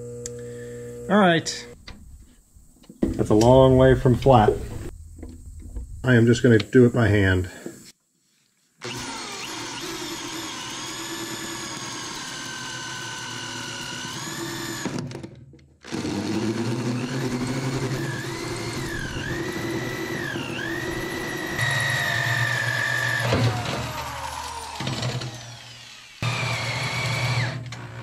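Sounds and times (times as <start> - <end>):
hole saw cutting steel: 8.8 - 15.0, 15.9 - 28.0
drill motor whining: 8.8 - 15.2, 15.8 - 28.0.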